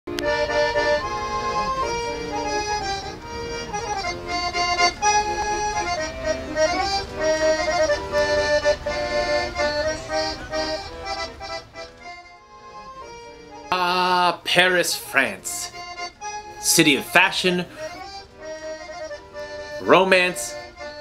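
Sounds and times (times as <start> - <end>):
instrumental melody of held notes: 0.1 - 21.0.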